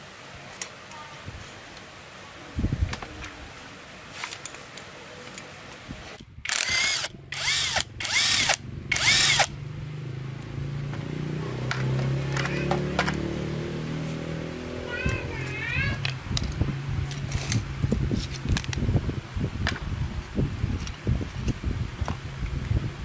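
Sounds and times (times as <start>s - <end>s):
small tool clicks: 6.4s - 9.5s
power drill spinning: 6.5s - 9.5s.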